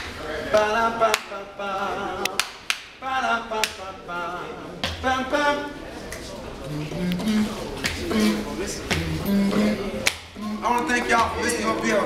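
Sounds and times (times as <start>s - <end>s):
man singing a cappella: 0.2s - 5.8s, 6.6s - 12.0s.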